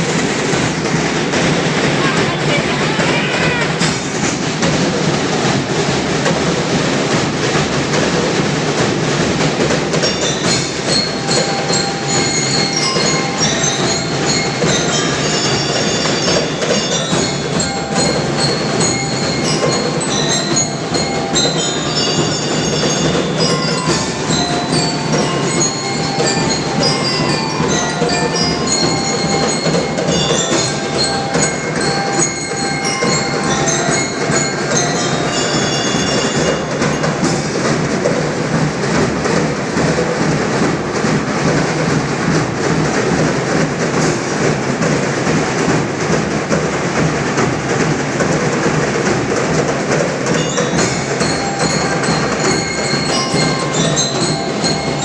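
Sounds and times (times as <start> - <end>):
marching drums beat: 0.0 - 55.0
bell lyres melody: 9.2 - 37.6, 50.1 - 55.0.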